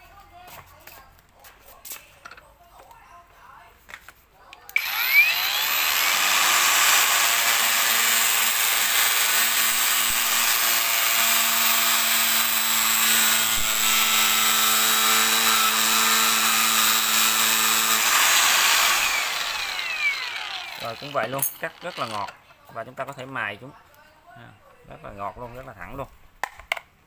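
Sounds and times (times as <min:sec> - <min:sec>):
angle grinder cutting plastic: 0:04.8 - 0:22.4.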